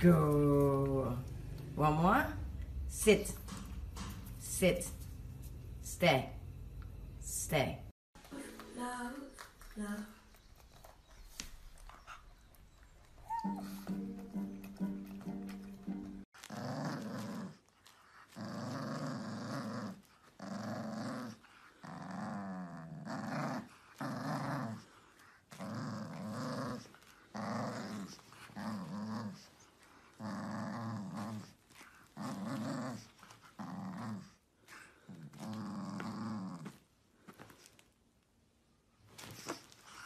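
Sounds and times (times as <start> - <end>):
puppy growling in play: 13.2 - 14.0, 14.6 - 36.9.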